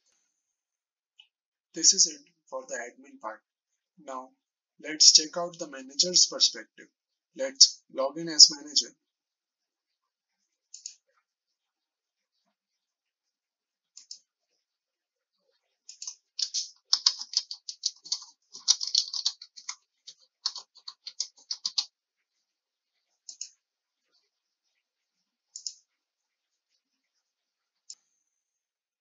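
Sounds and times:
mouse clicks: 0:14.0 - 0:14.2, 0:15.9 - 0:19.8, 0:20.4 - 0:21.9, 0:23.3 - 0:23.6, 0:25.5 - 0:25.8
typing on a computer keyboard: 0:15.9 - 0:21.9.

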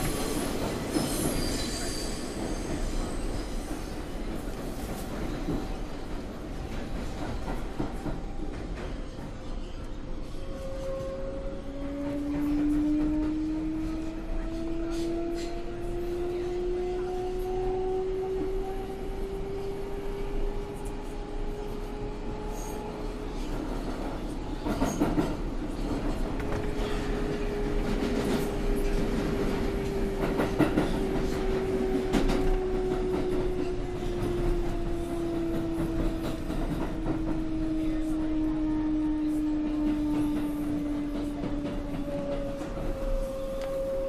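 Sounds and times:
train rolling rumble: 0:00.0 - 0:44.0
subway traction motor whine: 0:09.7 - 0:24.7, 0:25.4 - 0:44.0.

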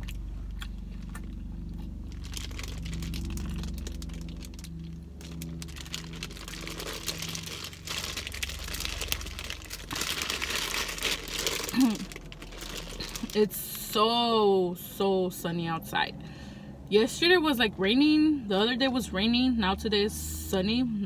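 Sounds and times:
person chewing food: 0:00.0 - 0:13.3
low steady hum: 0:00.0 - 0:21.0
plastic bag crinkling: 0:01.7 - 0:13.6.

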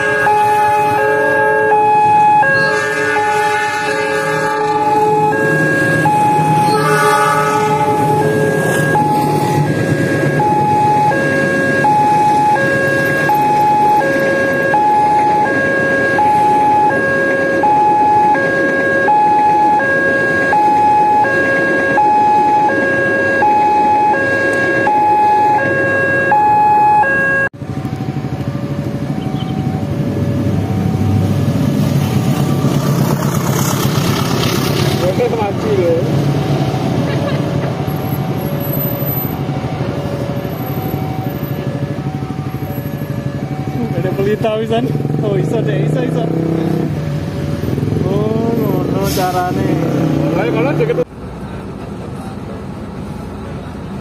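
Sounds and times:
passing train rumble: 0:00.0 - 0:24.9, 0:27.6 - 0:54.0
level-crossing two-tone alarm: 0:00.0 - 0:31.6
traffic noise: 0:00.0 - 0:54.0.

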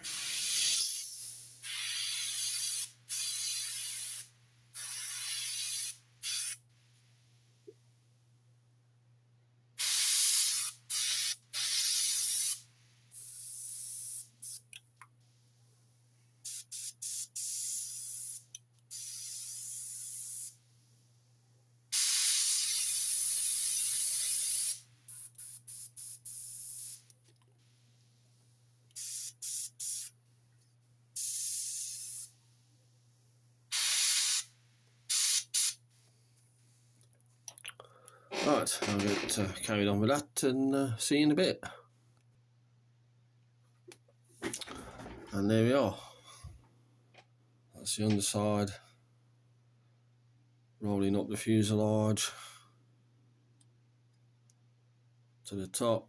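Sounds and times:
airbrush spraying hiss: 0:00.0 - 0:06.6, 0:09.8 - 0:14.7, 0:16.4 - 0:20.6, 0:21.9 - 0:27.1, 0:28.9 - 0:30.1, 0:31.2 - 0:32.4, 0:33.7 - 0:35.8.

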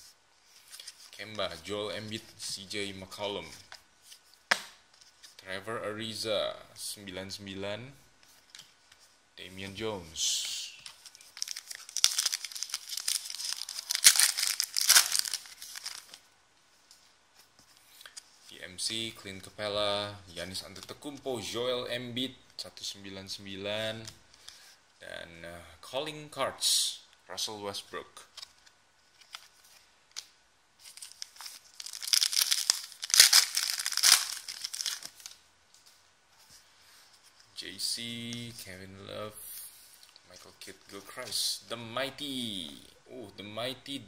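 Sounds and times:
foil wrapper crinkling and tearing: 0:10.9 - 0:16.2, 0:30.8 - 0:35.4.

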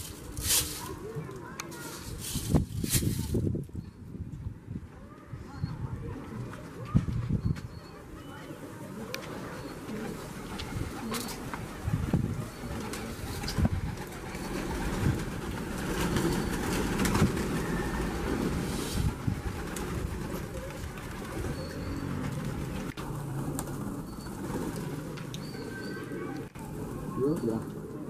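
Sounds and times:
pigeons cooing: 0:07.8 - 0:28.0
wings flapping: 0:09.2 - 0:28.0.

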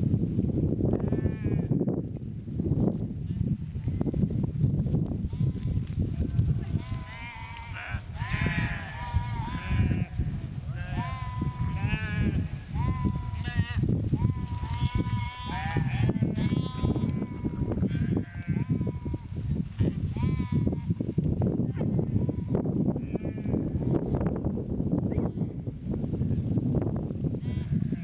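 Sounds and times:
flock of sheep bleating: 0:05.3 - 0:21.0, 0:27.4 - 0:28.0.

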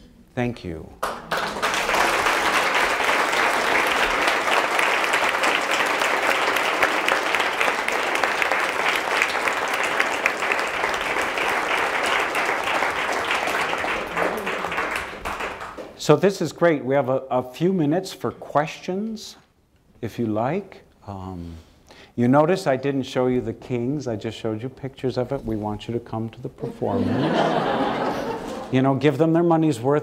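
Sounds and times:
audience applauding: 0:01.0 - 0:16.0, 0:27.0 - 0:28.7.

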